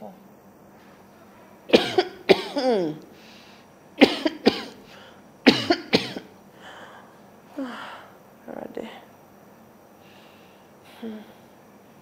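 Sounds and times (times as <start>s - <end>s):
person coughing: 1.7s - 3.0s, 4.0s - 4.8s, 5.5s - 6.3s.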